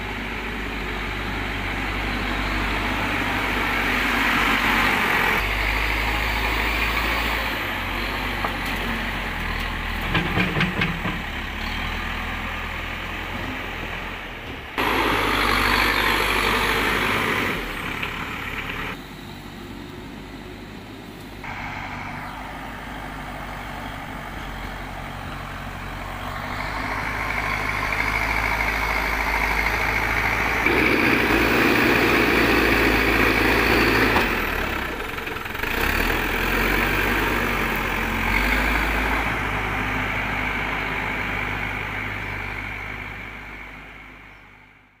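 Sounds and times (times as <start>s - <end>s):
backhoe diesel engine under load: 0.0s - 45.0s.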